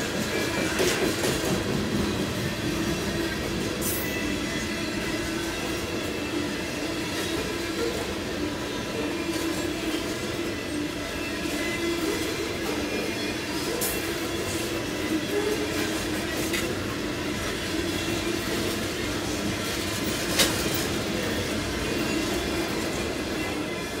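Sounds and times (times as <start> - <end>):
freight train wheels rumbling: 0.0 - 24.0.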